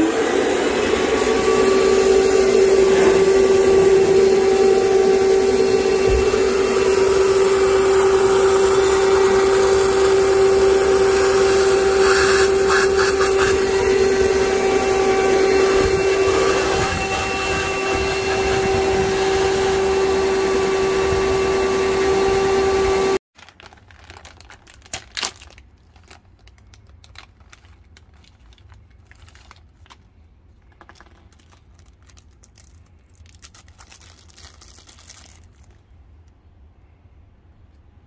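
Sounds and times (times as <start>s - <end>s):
vacuum cleaner whining: 0.0s - 23.2s.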